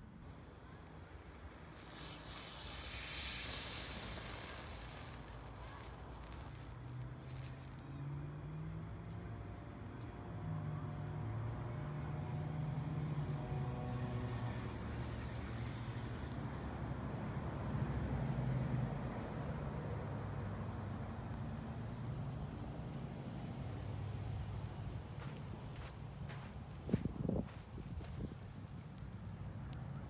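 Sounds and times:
thermite burning with rushing hiss: 0.0s - 9.2s, 22.9s - 30.0s.

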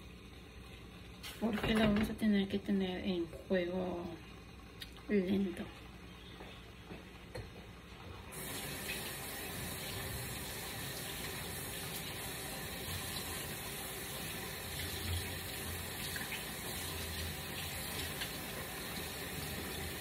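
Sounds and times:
faucet running into sink: 8.3s - 20.0s.

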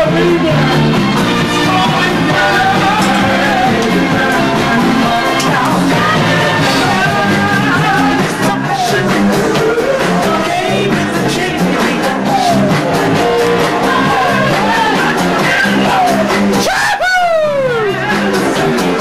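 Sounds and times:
rock music with singing: 0.0s - 19.0s.

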